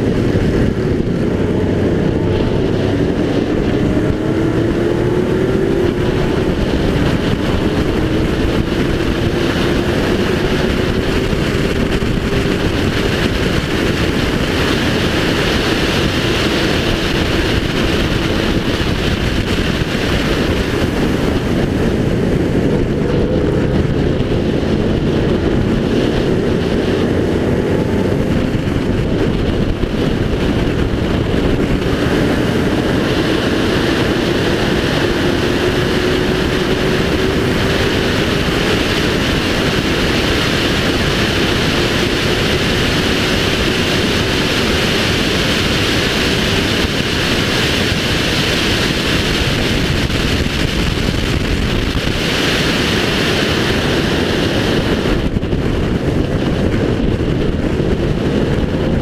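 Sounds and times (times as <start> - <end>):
race car engine: 0.0 - 59.0
wind and road noise: 0.0 - 59.0.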